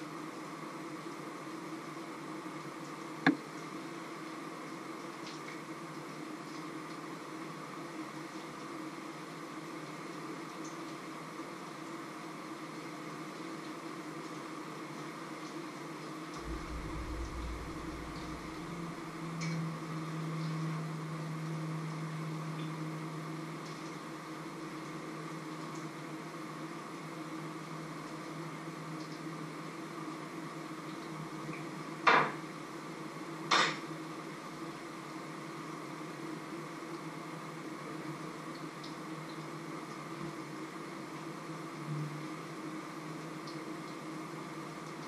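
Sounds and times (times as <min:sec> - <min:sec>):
steady hum: 0:16.4 - 0:24.4.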